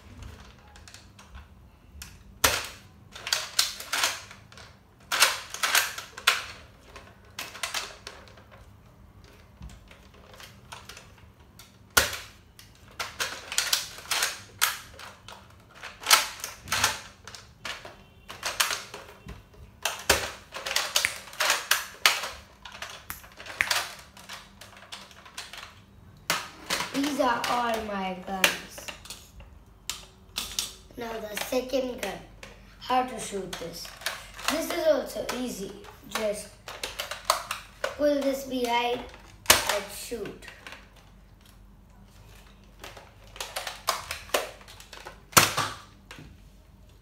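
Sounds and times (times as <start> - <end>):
toy blaster shot snapping: 19.9 - 22.3, 23.0 - 24.0.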